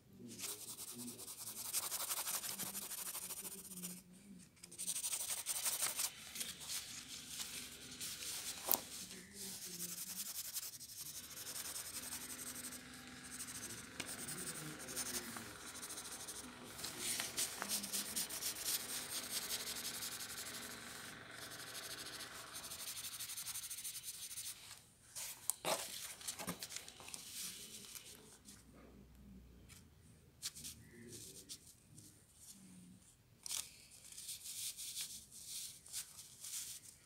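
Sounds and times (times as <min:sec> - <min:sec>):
pencil shading on paper: 0:00.4 - 0:04.0, 0:04.7 - 0:24.6
paper sheet crackling: 0:05.0 - 0:09.7, 0:16.8 - 0:18.2.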